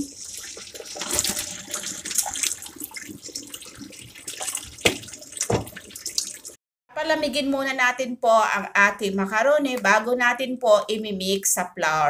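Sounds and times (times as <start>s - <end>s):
water pouring through a strainer: 0.0s - 6.6s.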